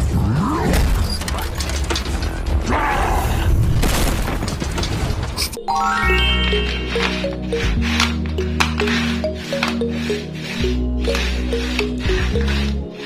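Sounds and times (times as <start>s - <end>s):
action soundtrack music: 5.5s - 13.0s.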